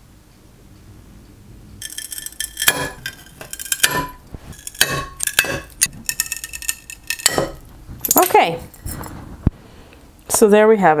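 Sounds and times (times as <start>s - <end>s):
porcelain pieces clinking: 1.8s - 9.1s.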